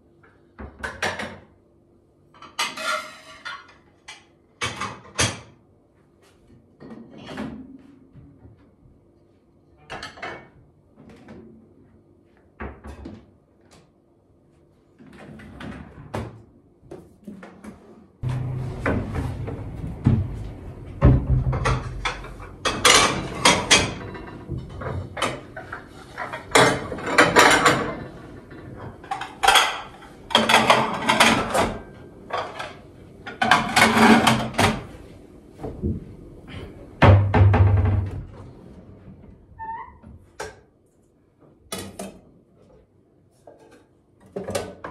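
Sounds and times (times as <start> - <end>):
cupboard doors opening and closing: 18.2 - 34.9, 35.6 - 39.0
plates and dishes clinking: 21.0 - 34.9.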